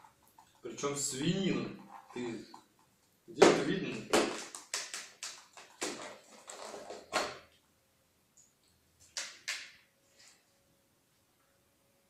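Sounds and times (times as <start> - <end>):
faint steady hum: 5.6 - 12.0.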